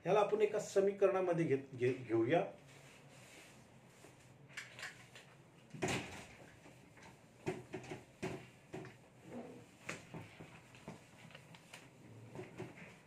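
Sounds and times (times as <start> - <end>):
eraser rubbing a whiteboard: 6.4 - 13.0.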